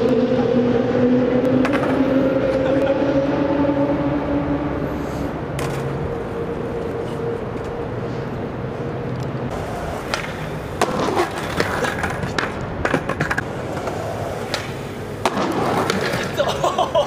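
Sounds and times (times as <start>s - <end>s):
skateboard clacking on concrete: 9.6s - 16.5s.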